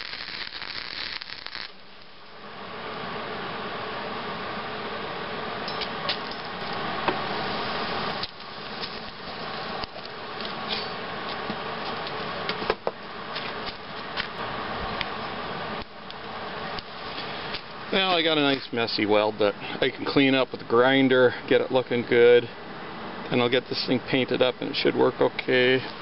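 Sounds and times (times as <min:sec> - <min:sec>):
welder cooling fan whirring: 0:00.0 - 0:26.0.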